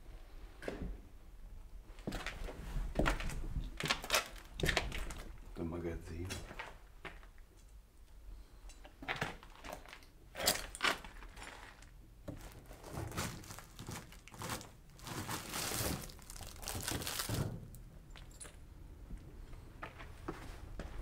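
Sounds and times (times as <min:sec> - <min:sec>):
rustling and scraping: 0:09.0 - 0:18.4, 0:19.8 - 0:21.0
debris crunching and crackling: 0:09.3 - 0:18.3.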